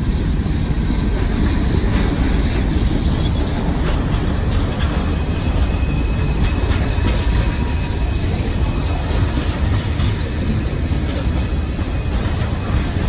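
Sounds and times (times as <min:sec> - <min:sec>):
freight train rolling past: 0:00.0 - 0:13.0.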